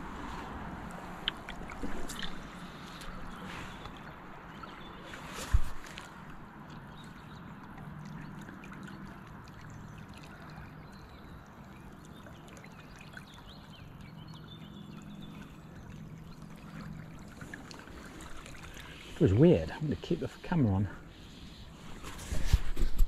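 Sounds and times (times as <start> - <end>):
river water over rocks: 0.0 - 23.0.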